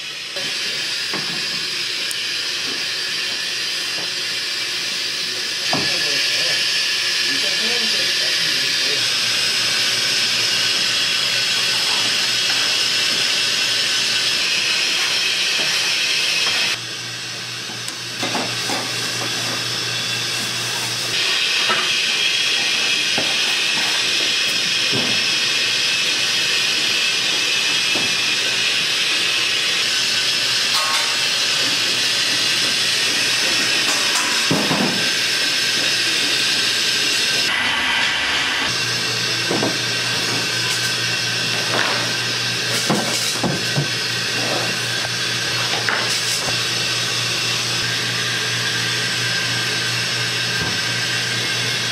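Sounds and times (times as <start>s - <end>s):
steam hissing: 0.0s - 16.8s, 17.9s - 51.9s
kitchen clatter: 30.8s - 31.9s, 33.6s - 35.1s.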